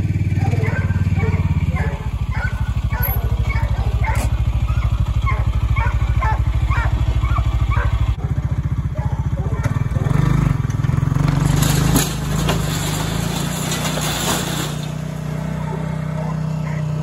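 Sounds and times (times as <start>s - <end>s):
utility vehicle engine throbbing: 0.0s - 17.0s
wood scraping along ground: 10.1s - 15.4s.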